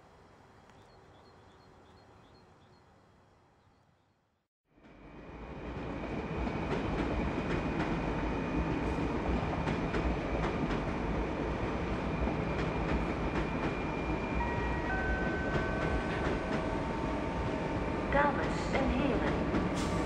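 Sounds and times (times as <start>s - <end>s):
train rumble and hiss: 4.7s - 20.0s.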